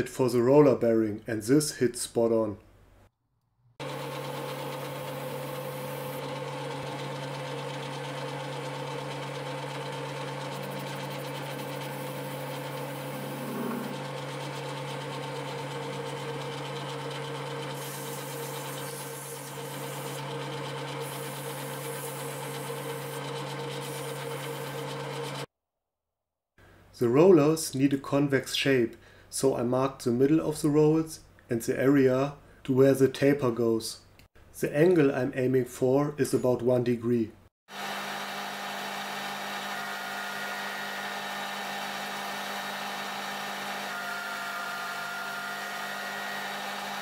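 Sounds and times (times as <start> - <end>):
metal lathe humming: 3.8 - 25.5, 37.8 - 47.0.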